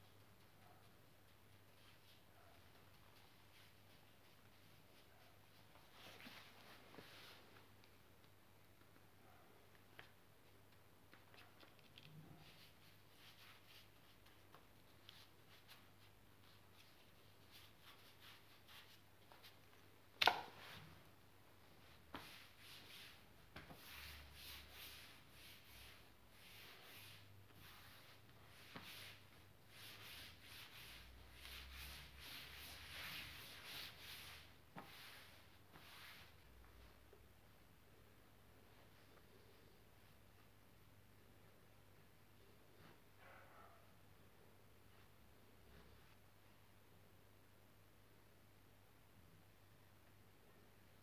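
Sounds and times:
hands rubbing fabric: 0.0s - 8.4s, 9.8s - 37.3s.

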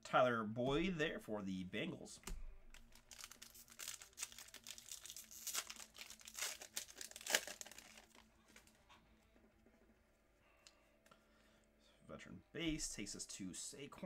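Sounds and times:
foil wrapper crinkling and tearing: 2.7s - 8.8s.

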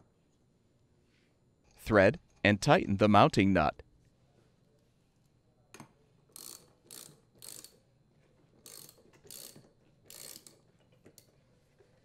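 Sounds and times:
ratchet pawl clicking: 6.3s - 7.8s, 8.6s - 11.3s.

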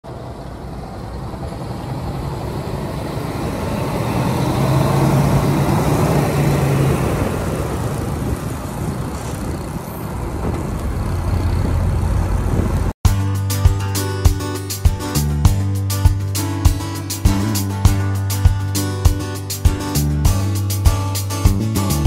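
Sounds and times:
road traffic passing: 0.0s - 13.0s, 13.8s - 22.0s
lorry diesel drone: 0.1s - 8.9s.

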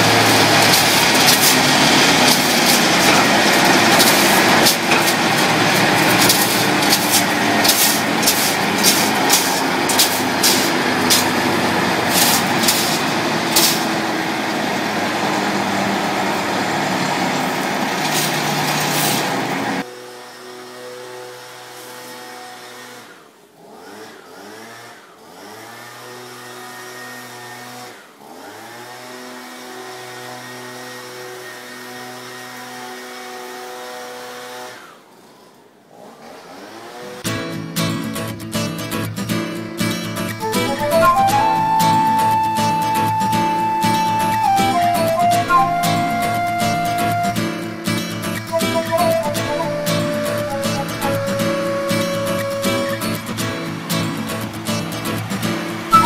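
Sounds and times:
wood chipper grinding: 0.0s - 19.8s.

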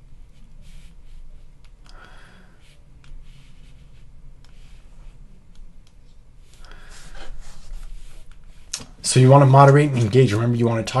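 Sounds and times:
soft rustling: 2.6s - 9.0s
computer mouse clicking: 5.5s - 6.8s.

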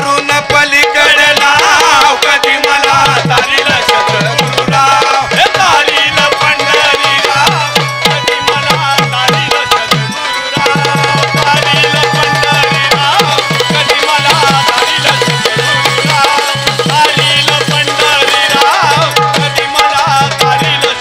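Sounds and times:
folk melody line: 0.0s - 21.0s
hand drum fast rhythm: 0.0s - 21.0s.

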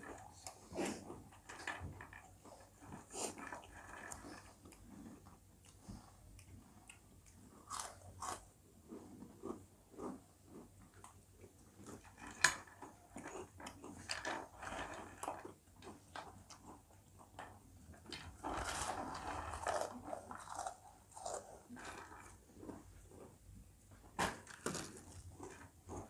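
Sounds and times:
people crunching snacks: 7.2s - 8.5s, 18.4s - 22.7s.

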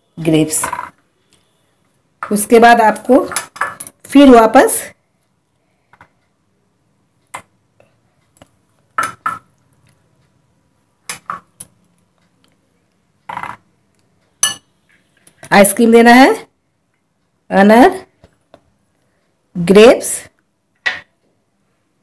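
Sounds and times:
spoon clinking against glass: 14.4s - 14.7s.

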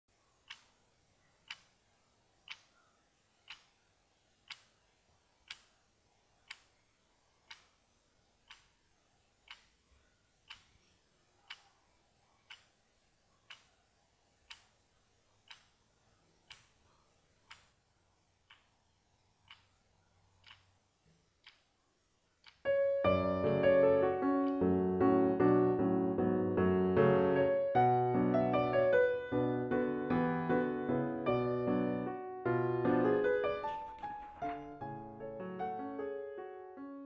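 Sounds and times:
clock ticking: 0.4s - 1.8s, 2.4s - 3.8s, 4.4s - 6.8s, 7.4s - 17.8s, 18.4s - 19.8s, 20.4s - 20.8s, 21.4s - 21.7s, 22.4s - 26.0s.

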